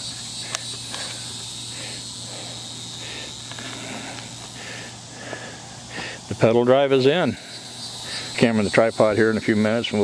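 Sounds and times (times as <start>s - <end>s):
insects singing: 0.0s - 10.0s.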